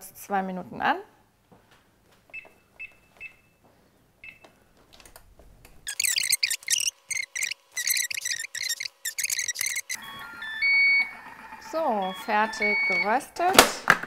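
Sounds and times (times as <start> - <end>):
short high beeps: 5.9 - 10.0.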